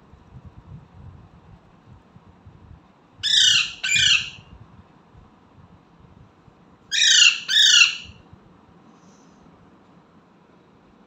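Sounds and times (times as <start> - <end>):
parrot squawking: 3.2 - 4.4, 6.9 - 8.2.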